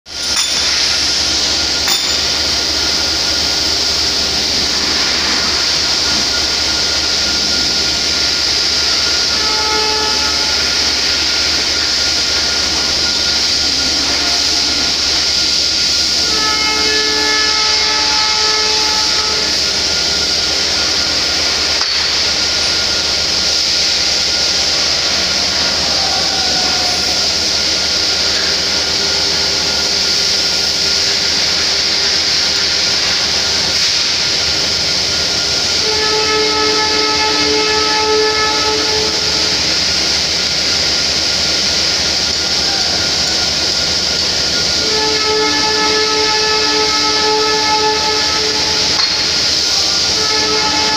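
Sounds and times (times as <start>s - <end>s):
multi-tone machine hum: 0.1s - 34.0s
loud machinery noise: 0.1s - 50.9s
constant high hiss: 0.2s - 50.9s.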